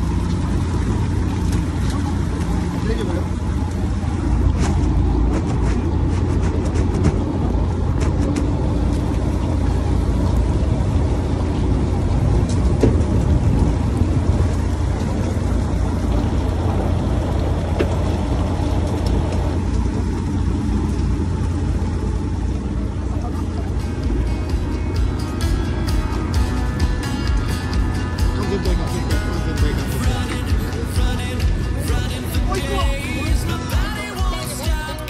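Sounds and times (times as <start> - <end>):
boat engine humming: 0.0 - 35.0
light water noise: 0.0 - 35.0.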